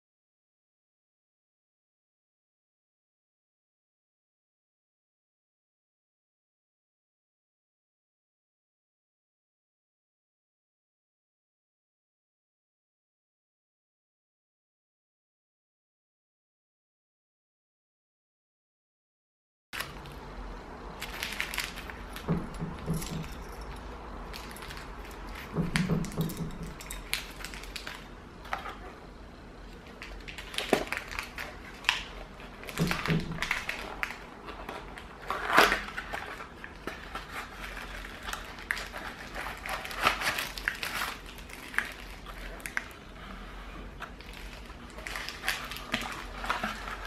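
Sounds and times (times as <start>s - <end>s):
plastic bag crinkling: 19.8s - 28.9s, 29.6s - 43.3s, 43.9s - 47.0s
small parts clicking and rattling: 21.0s - 28.0s
cardboard box and metal track knocking: 22.1s - 23.6s.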